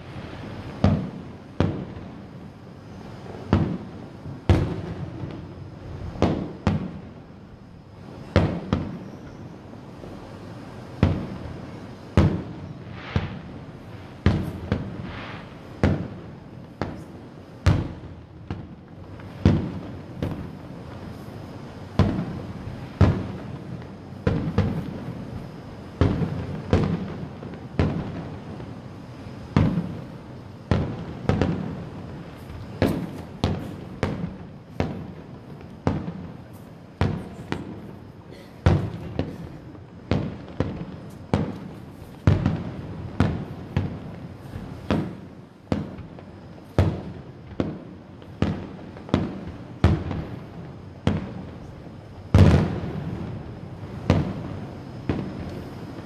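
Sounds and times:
fireworks booming: 0:00.0 - 0:56.0.

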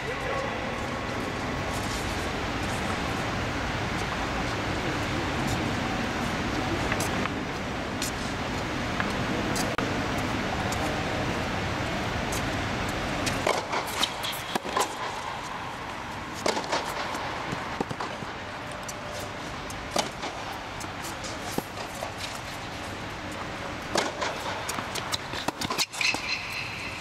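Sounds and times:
tennis ball strikes off rackets: 0:13.2 - 0:15.2, 0:16.4 - 0:18.3, 0:19.9 - 0:20.6, 0:23.9 - 0:26.7
ball bouncing on court: 0:23.9 - 0:27.0.

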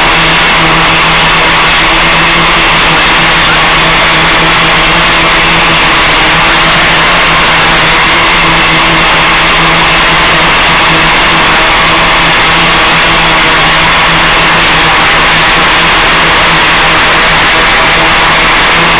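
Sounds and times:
loud steady hiss: 0:00.0 - 0:18.9.

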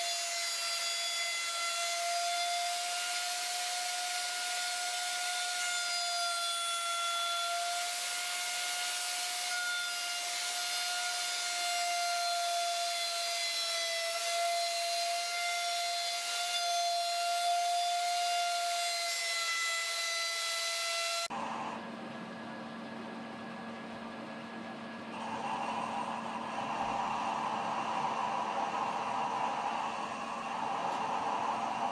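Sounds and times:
electric router cutting wood: 0:00.0 - 0:21.8, 0:25.1 - 0:31.9.

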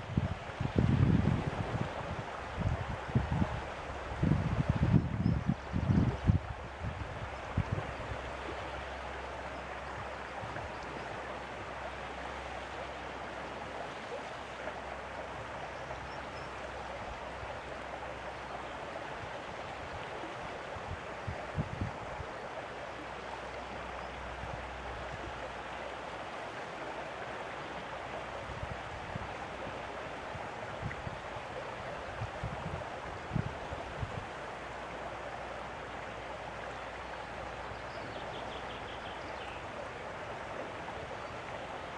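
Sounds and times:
wind rumbling on microphone: 0:00.0 - 0:11.7, 0:14.6 - 0:22.6, 0:27.7 - 0:35.1.

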